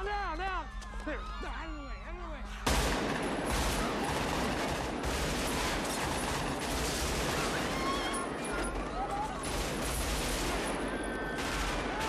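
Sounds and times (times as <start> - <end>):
automatic rifle fire: 2.7 - 12.0.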